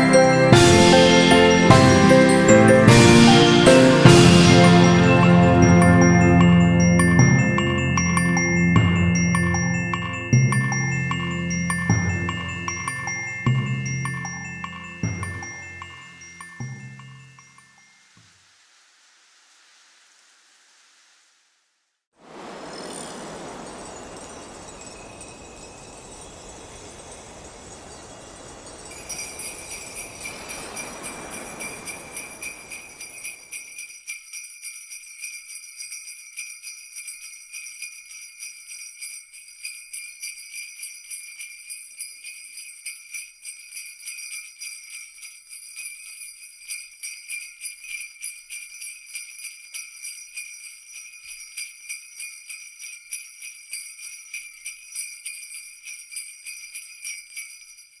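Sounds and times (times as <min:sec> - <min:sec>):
sleigh bells jingling: 0:00.0 - 0:18.2, 0:22.2 - 0:58.0
low rushing noise: 0:22.2 - 0:33.5.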